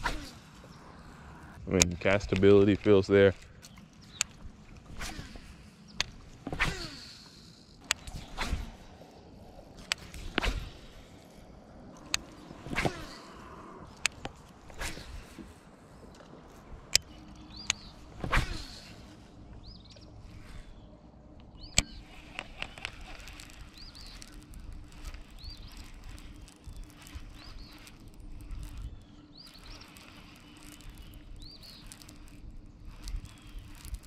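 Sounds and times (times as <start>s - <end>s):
sharp clicks: 1.4s - 5.1s, 16.9s - 18.4s, 21.4s - 34.0s
high bird chirps: 17.0s - 18.1s, 21.5s - 34.0s.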